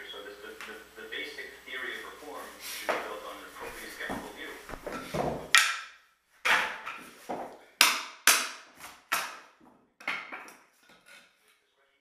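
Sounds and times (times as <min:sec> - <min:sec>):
wood pieces landing on floor: 0:04.7 - 0:05.8, 0:09.1 - 0:10.6
floorboards pried up with crowbar: 0:06.4 - 0:11.4.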